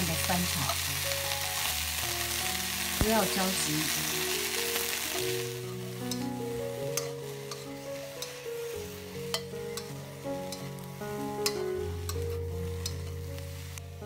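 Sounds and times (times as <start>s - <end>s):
background music: 0.0s - 14.0s
vegetables sizzling in a wok: 0.0s - 14.0s
spatula clicking against pan: 9.3s - 9.9s.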